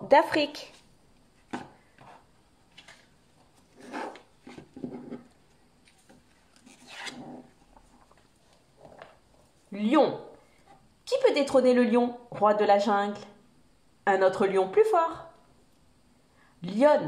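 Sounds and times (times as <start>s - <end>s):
paper pages rustling: 1.4s - 9.2s.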